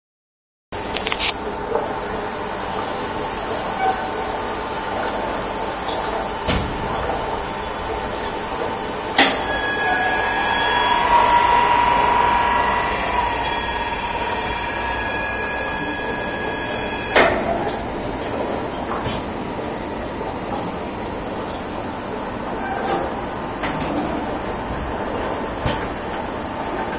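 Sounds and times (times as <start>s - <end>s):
high-pitched hiss and whine: 0.8s - 19.0s
machine hum: 3.4s - 19.0s.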